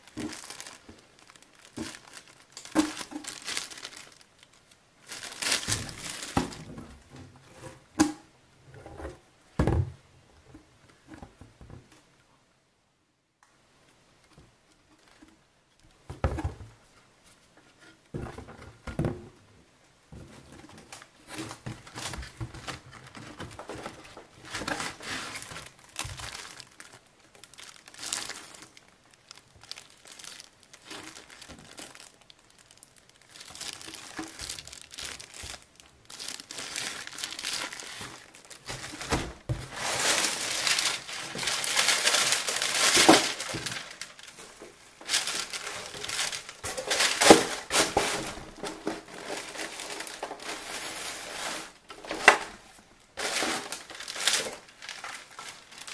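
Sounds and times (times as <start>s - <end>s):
plastic packaging crinkling: 0.0s - 7.0s, 20.7s - 55.9s.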